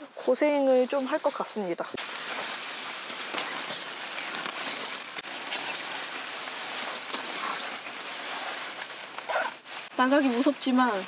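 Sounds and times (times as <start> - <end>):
rain poncho rustling: 0.0 - 11.0.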